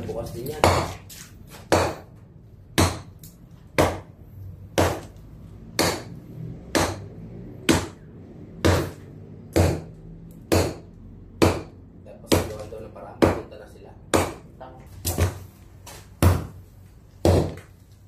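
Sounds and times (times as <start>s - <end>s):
hammer striking concrete: 0.5s - 1.0s, 1.6s - 2.1s, 2.7s - 3.2s, 3.8s - 4.1s, 4.8s - 5.1s, 5.8s - 7.1s, 7.7s - 8.0s, 8.6s - 13.5s, 14.1s - 15.4s, 16.2s - 16.6s, 17.2s - 17.7s.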